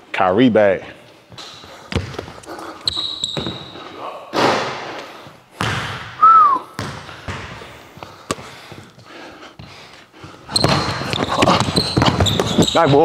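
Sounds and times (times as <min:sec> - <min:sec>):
sneaker squeak: 0:01.3 - 0:04.0, 0:10.4 - 0:13.0
basketball bouncing on wooden floor: 0:01.4 - 0:03.8, 0:05.6 - 0:06.1, 0:06.8 - 0:08.4, 0:10.4 - 0:13.0.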